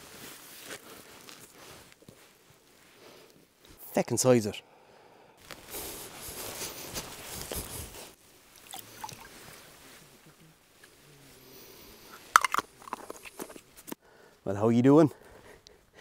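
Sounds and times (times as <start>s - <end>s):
water gurgling into bottle: 8.6s - 9.6s
bottle handling: 8.6s - 9.7s, 12.1s - 14.0s.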